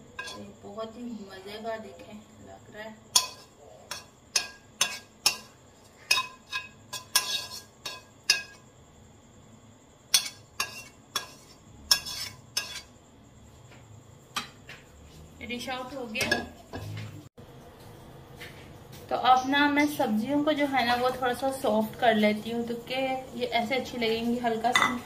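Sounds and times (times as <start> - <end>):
spatula scraping frying pan: 0.0 - 0.6, 3.1 - 8.6, 10.1 - 13.0.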